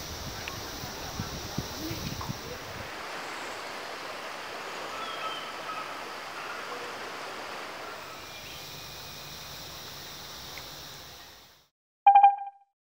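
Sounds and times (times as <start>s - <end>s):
stream water flowing: 2.2s - 8.2s.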